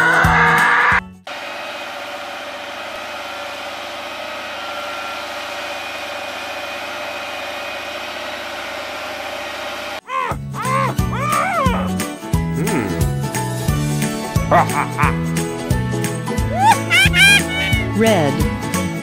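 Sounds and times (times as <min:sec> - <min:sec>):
tractor engine running under load: 0:01.3 - 0:10.0.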